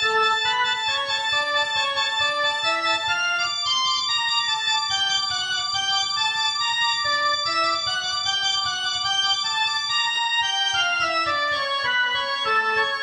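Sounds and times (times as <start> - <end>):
electronic organ chords: 0.0 - 13.0.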